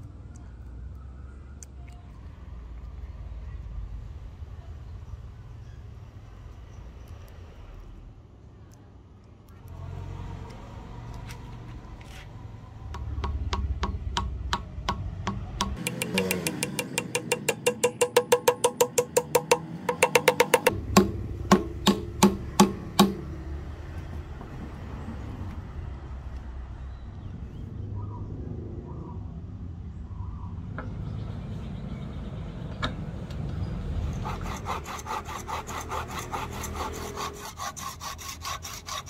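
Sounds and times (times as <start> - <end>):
hammer tapping wooden wedge: 12.9 - 23.3
hard hammer blows: 13.0 - 23.3.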